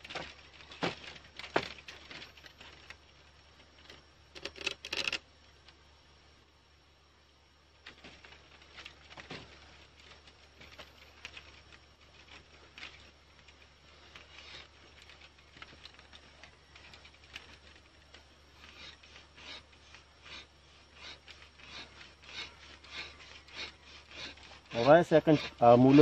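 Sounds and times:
stick scraping wooden fireboard: 0:07.8 - 0:26.0.

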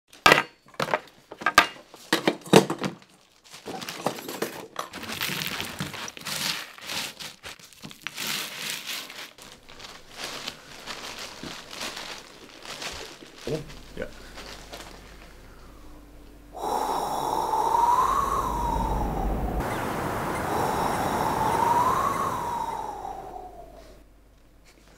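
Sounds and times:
crushing and scraping clods: 0:02.9 - 0:15.9.

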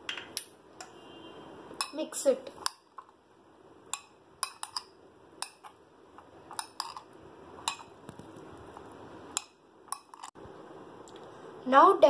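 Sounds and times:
metal spoon clinking glass bowl: 0:03.9 - 0:05.7, 0:06.5 - 0:07.9.

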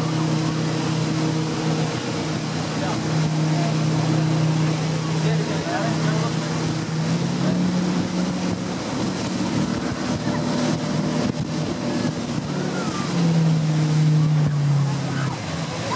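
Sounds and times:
motorboat engine running: 0:00.0 - 0:15.9
rushing water: 0:00.0 - 0:15.9
wind on microphone: 0:06.6 - 0:15.9.

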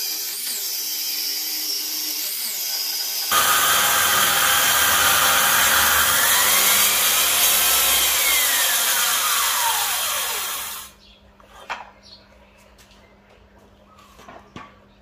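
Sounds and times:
power saw cutting wood: 0:00.0 - 0:11.0.

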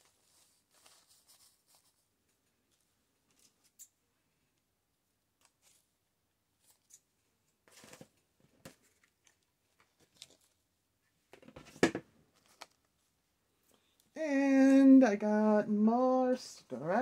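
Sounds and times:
paper and fabric rustling: 0:00.0 - 0:03.8, 0:06.6 - 0:10.7.

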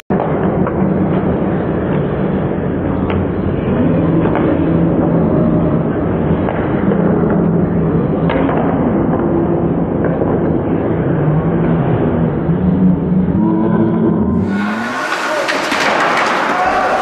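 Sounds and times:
arena noise: 0:00.1 - 0:17.0
hockey sticks clacking on puck: 0:14.4 - 0:17.0
skates on ice: 0:14.4 - 0:17.0.

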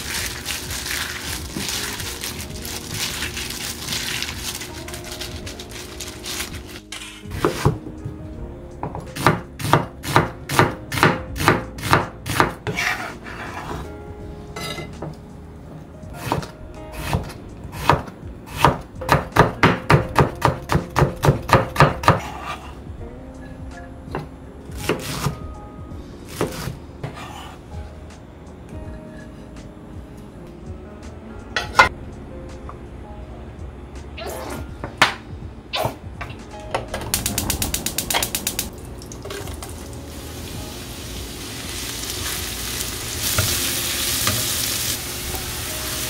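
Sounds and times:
knife chopping on cutting board: 0:09.1 - 0:13.1, 0:16.2 - 0:22.6.

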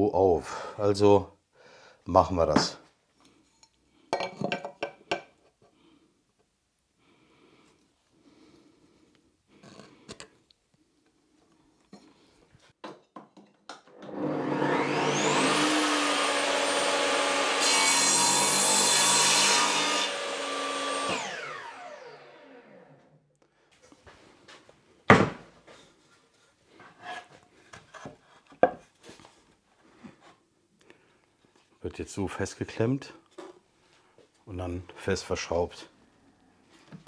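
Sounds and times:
saw cutting wood: 0:14.0 - 0:23.0
table saw whine: 0:14.0 - 0:23.1.

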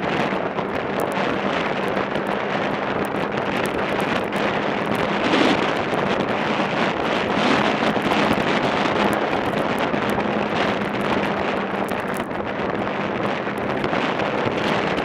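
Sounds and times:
snowmobile engine hum: 0:00.0 - 0:15.0
wind rushing over microphone: 0:00.0 - 0:15.0.

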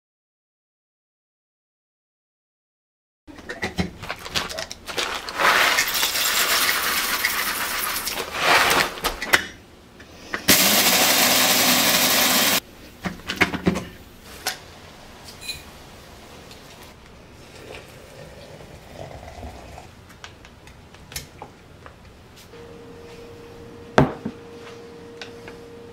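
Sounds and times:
coffee beans pouring rattle: 0:04.9 - 0:09.0, 0:10.5 - 0:12.6
coffee grinder humming: 0:10.5 - 0:12.6.

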